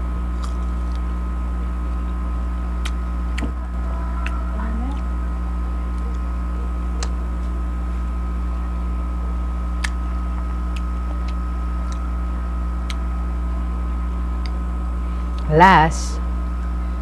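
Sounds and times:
low electrical hum: 0.0s - 17.0s
crunchy chewing clicks: 0.3s - 1.4s, 2.0s - 5.2s, 5.8s - 7.6s, 9.6s - 13.5s, 14.4s - 14.7s.

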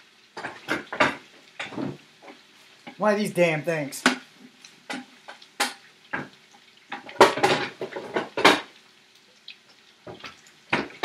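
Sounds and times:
pots and pans clanking: 0.3s - 3.0s, 4.0s - 8.8s, 10.1s - 11.0s.

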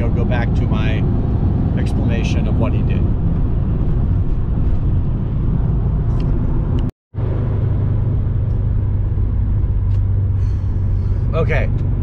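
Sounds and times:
car cabin road and engine drone: 0.0s - 12.0s.

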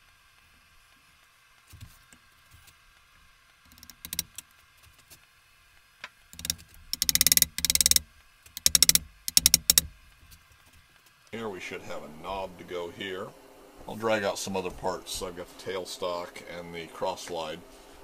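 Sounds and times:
hand ratchet clicking: 3.7s - 4.4s, 6.4s - 9.9s.

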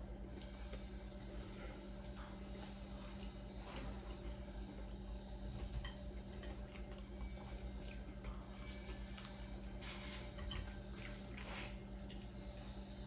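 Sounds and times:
low steady hum: 0.0s - 13.0s
chewing and mouth clicks: 2.0s - 3.9s, 5.8s - 9.8s, 10.5s - 12.4s.

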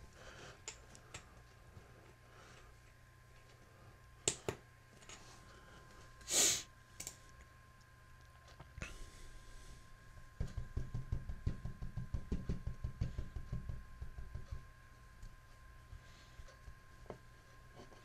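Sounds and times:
short loud hiss: 6.3s - 6.7s.

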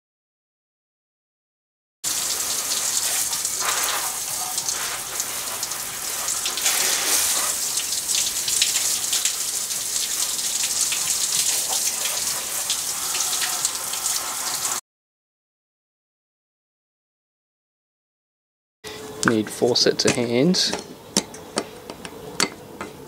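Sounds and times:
hose spraying water on metal: 2.0s - 14.8s.

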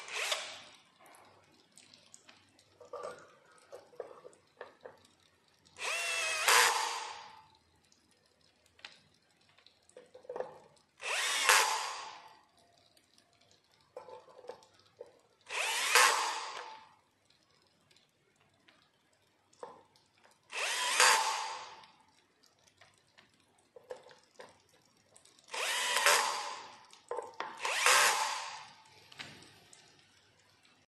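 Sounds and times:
cordless drill whining: 0.0s - 0.6s, 5.8s - 7.3s, 11.0s - 12.2s, 15.5s - 16.7s, 20.5s - 21.8s, 25.5s - 26.7s, 27.6s - 28.7s.

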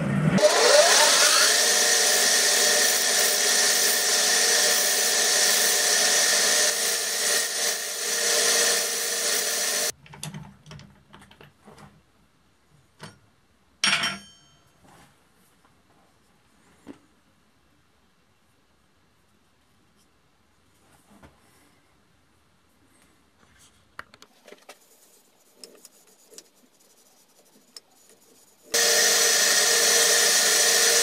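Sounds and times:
chisel scraping wood on lathe: 0.4s - 9.9s, 24.6s - 31.0s
lathe motor whine: 0.4s - 9.9s, 28.7s - 31.0s.

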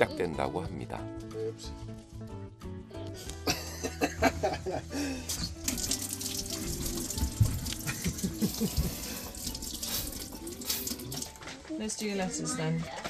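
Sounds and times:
tap water running into sink: 5.3s - 11.5s.

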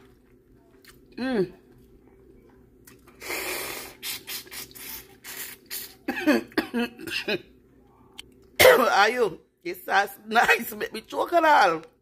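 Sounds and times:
woman choking and coughing: 6.0s - 7.5s, 8.6s - 9.0s.

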